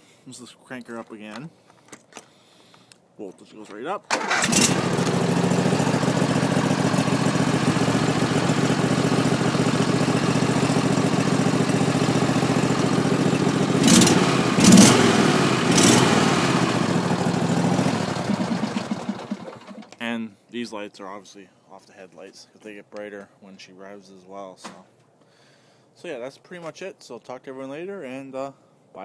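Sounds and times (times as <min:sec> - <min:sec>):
tractor engine idling and revving: 0:04.1 - 0:20.0.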